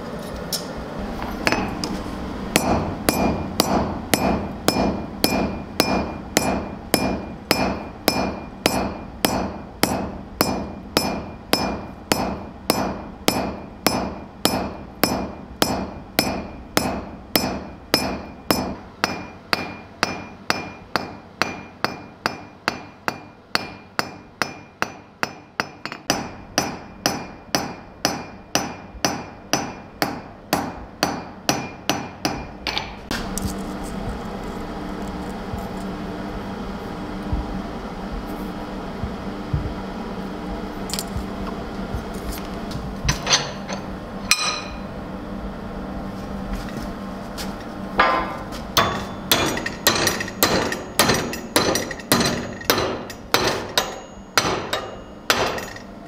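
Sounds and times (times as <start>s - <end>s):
hammer striking steel on anvil: 1.2s - 1.9s, 2.5s - 33.2s, 43.1s - 44.9s, 48.0s - 56.0s
high metallic ring: 43.3s - 45.0s, 48.0s - 55.9s.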